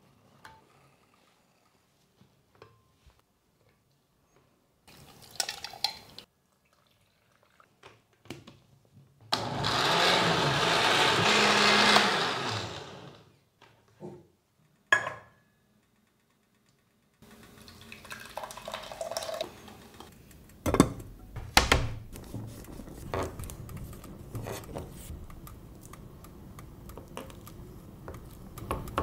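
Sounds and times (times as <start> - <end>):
blender running: 9.3 - 13.3.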